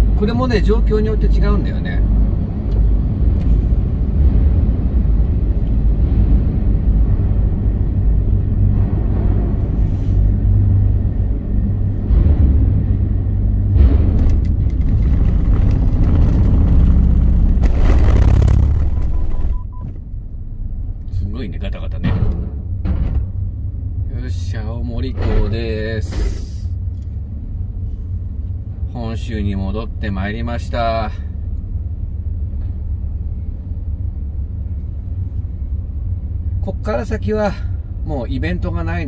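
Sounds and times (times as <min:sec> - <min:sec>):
car interior rumble: 0:00.0 - 0:39.0
rattling over a ramp: 0:13.7 - 0:19.5.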